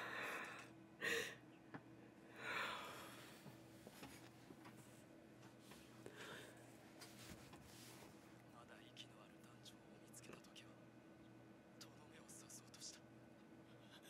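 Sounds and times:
woman sighing: 0.0 - 1.4
faint steady hum: 0.0 - 14.0.

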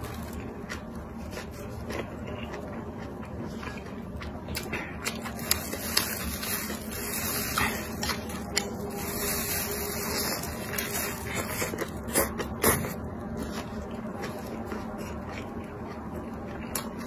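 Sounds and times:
wet chewing and smacking: 0.0 - 9.0, 10.1 - 17.0
plastic glove rustling: 5.3 - 12.0.

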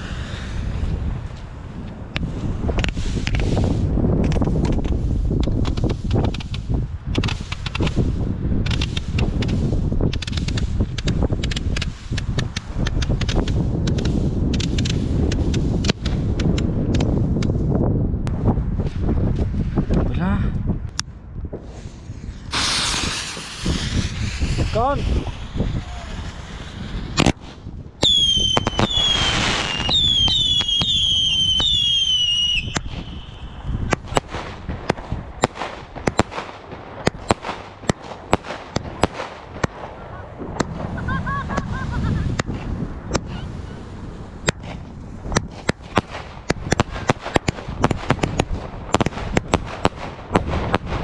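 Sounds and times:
firework bangs and crackles: 0.0 - 20.0, 21.4 - 51.0
firework whistles falling in pitch: 22.5 - 27.2, 28.0 - 33.6.

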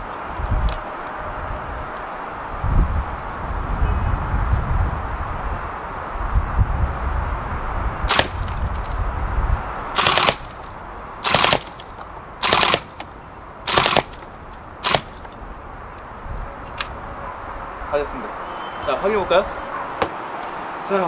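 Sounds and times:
airsoft gun firing bursts: 8.1 - 8.6, 10.0 - 13.1, 13.7 - 14.2, 14.8 - 15.2
single gun crack: 8.1 - 9.0.

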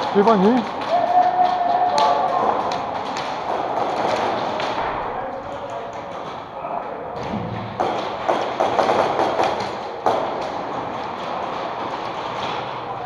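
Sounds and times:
indistinct voices: 0.0 - 7.9.

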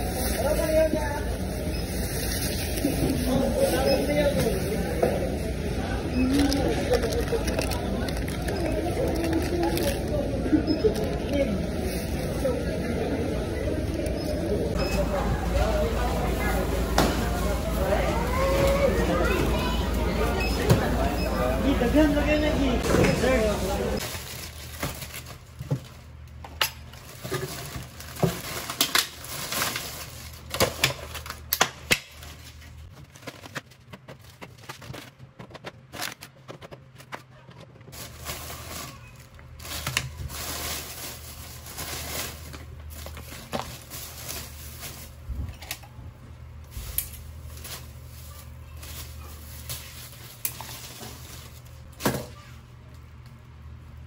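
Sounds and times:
plastic bag rustling: 0.0 - 12.8, 22.8 - 26.2, 26.8 - 31.5, 32.2 - 45.3, 46.6 - 52.0.

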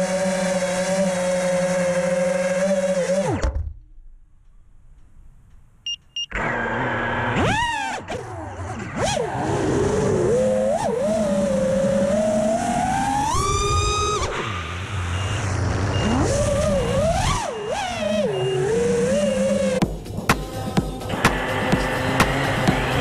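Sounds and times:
short high beeps: 5.8 - 6.3
drone motors whining: 5.9 - 23.0.

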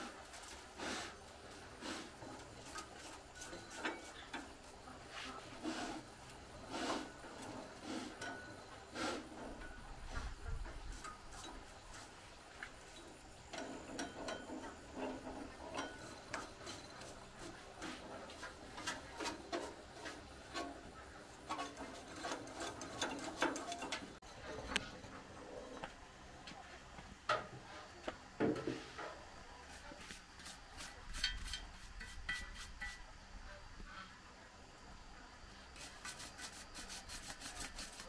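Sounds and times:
tools scraping metal drum: 0.0 - 25.2, 29.7 - 33.1
metal tools knocking on metal: 13.0 - 24.3.

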